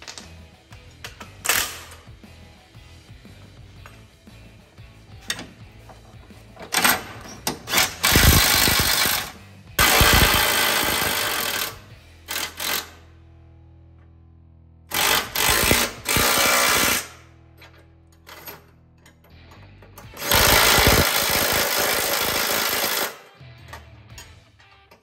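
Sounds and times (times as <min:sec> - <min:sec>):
impact wrench hammering: 0:07.5 - 0:13.0, 0:14.9 - 0:17.2, 0:20.0 - 0:24.3.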